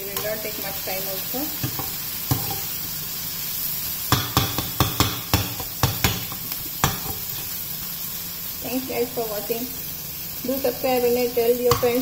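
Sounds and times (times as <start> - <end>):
food sizzling in a frying pan: 0.0 - 12.0
spoon tapping against a pan: 1.6 - 2.7, 4.1 - 7.2, 11.7 - 12.0.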